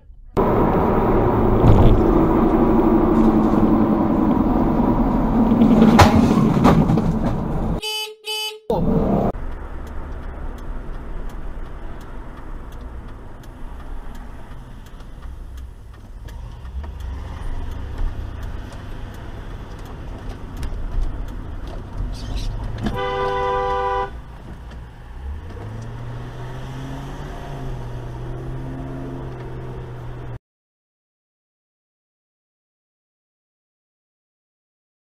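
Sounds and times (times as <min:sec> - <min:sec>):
road and engine rumble: 0:00.0 - 0:07.8, 0:08.7 - 0:30.4
car traffic: 0:00.0 - 0:30.4
car horn beeps: 0:07.8 - 0:08.8, 0:22.9 - 0:24.2.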